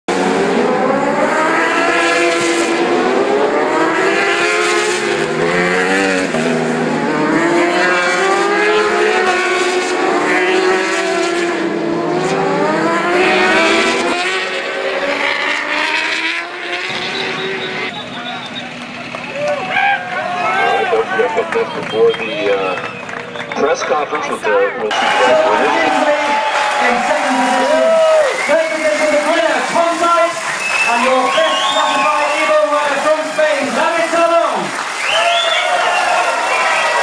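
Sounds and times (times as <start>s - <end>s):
racing motorcycles revving past: 0.1s - 18.0s.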